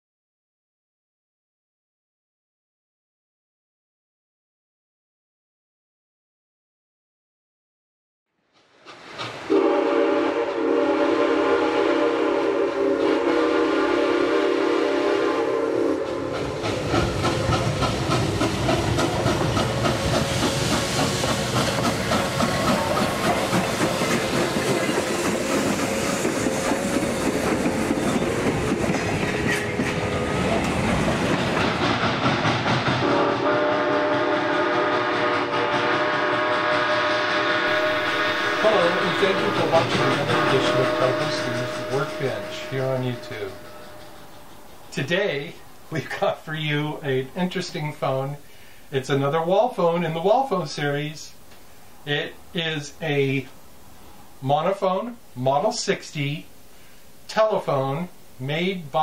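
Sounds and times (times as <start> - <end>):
train wheels clattering: 8.6 - 9.8, 16.0 - 37.0, 37.7 - 45.1
train whistle chord: 9.5 - 16.5, 33.0 - 44.6.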